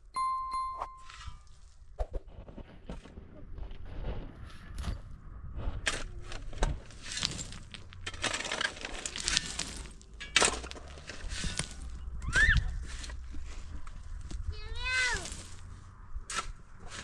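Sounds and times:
cracks crunches and knocks: 0:06.3 - 0:11.9.

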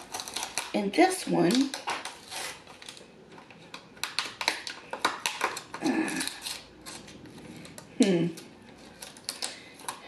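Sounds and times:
plastic lid clicking and crackling: 0:04.0 - 0:05.8.

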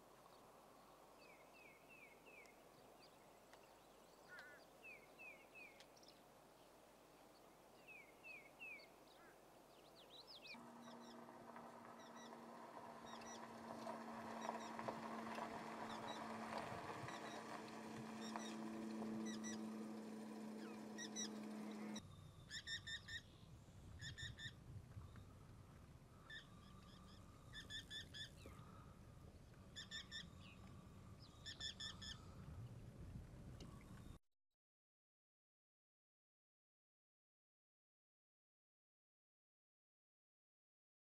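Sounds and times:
small bird chirps: 0:07.8 - 0:11.2, 0:11.9 - 0:12.4, 0:13.0 - 0:13.5, 0:18.2 - 0:18.6, 0:19.2 - 0:19.7, 0:20.5 - 0:25.2, 0:26.2 - 0:28.6, 0:29.7 - 0:32.3
steady low hum: 0:10.5 - 0:22.5.

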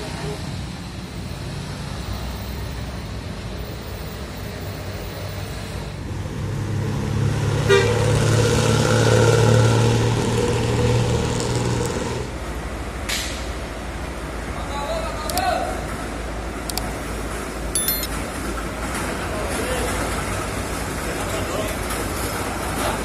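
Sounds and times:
bus horn: 0:07.7 - 0:08.1.

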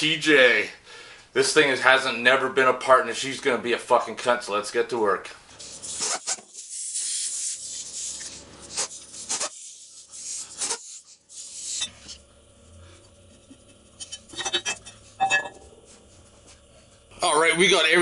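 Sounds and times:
aerosol can spraying: 0:05.6 - 0:12.2.

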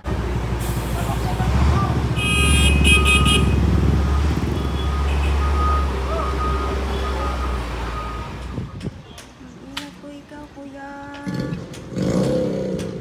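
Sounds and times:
diesel machinery engine rumble: 0:00.0 - 0:13.0
reversing alarm beeping: 0:02.8 - 0:08.4.

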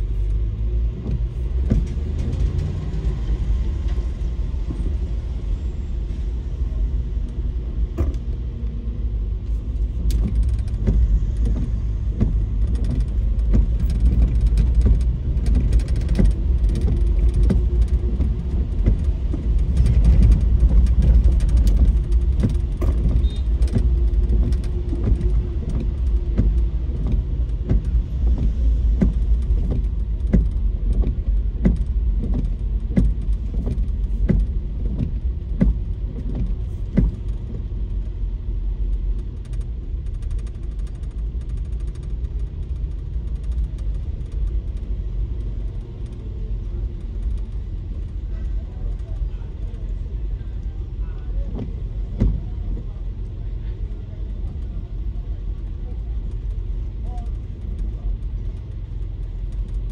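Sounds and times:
car road and engine rumble: 0:00.0 - 0:59.9
small ticks and rattles: 0:38.8 - 0:50.0.

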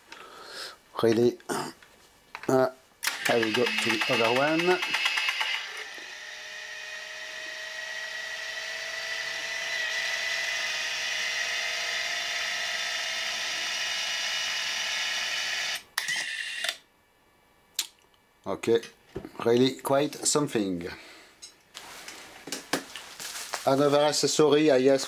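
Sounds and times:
small motor whine: 0:03.2 - 0:16.7.

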